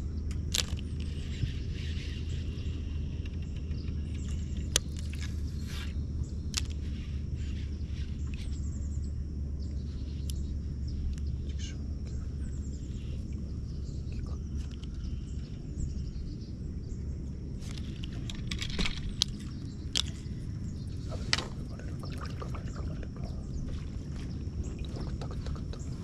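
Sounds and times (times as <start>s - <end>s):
steady low rumble: 0.0s - 26.0s
water sloshing and splashing: 17.6s - 26.0s
sharp clicks: 17.7s - 20.3s.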